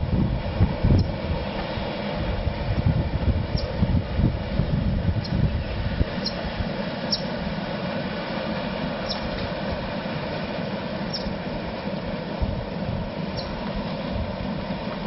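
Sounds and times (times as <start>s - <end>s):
paddle steamer low rumble: 0.0s - 15.0s.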